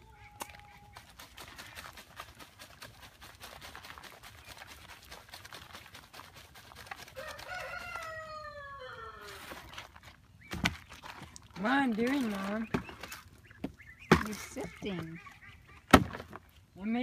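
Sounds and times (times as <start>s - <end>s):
compost rattling in a sifter: 0.5s - 13.3s
rooster crowing: 7.2s - 9.5s.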